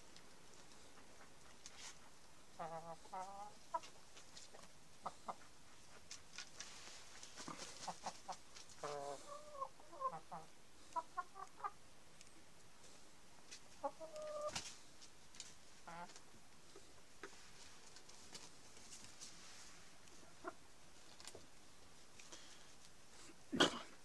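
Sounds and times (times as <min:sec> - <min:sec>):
chickens clucking: 0:00.5 - 0:12.4, 0:13.5 - 0:19.2, 0:20.0 - 0:21.5.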